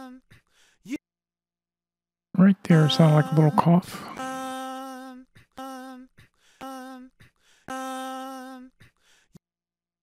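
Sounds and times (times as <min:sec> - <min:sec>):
sung held note with vibrato: 0:02.7 - 0:04.7.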